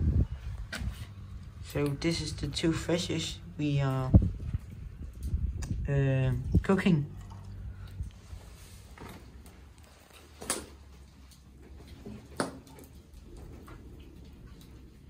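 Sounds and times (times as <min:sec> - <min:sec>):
low steady rumble: 0:00.0 - 0:15.0
fire popping: 0:03.8 - 0:06.7.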